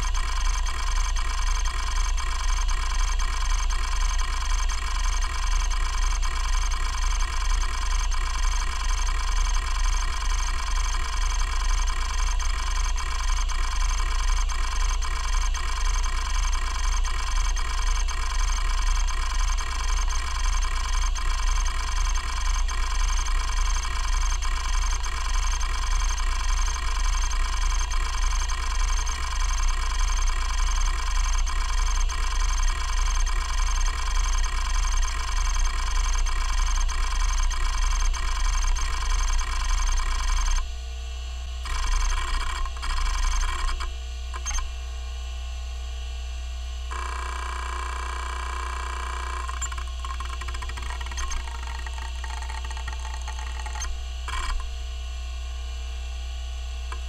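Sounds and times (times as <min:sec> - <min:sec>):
hard drive spindle hum: 0:00.0 - 0:40.7, 0:41.5 - 0:45.0, 0:46.9 - 0:55.0, 0:56.7 - 0:57.0
hard drive head ticks: 0:49.5 - 0:54.6.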